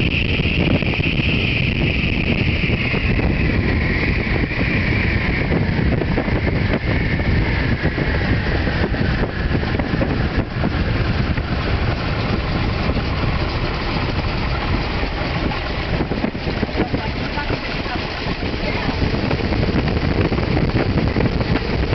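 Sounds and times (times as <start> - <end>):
plane engine rumbling: 0.0 - 21.9.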